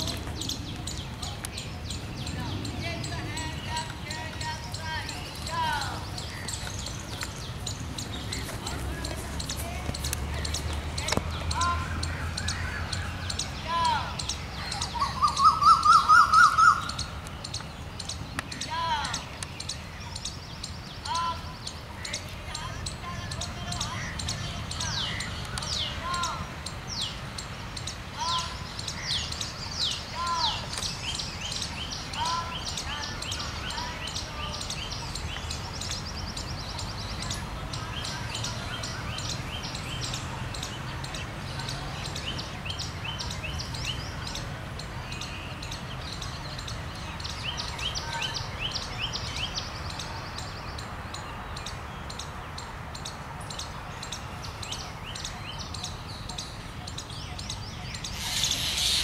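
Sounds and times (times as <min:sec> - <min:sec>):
birds chirping: 0:00.0 - 0:59.0
loud rush of noise: 0:58.1 - 0:59.0.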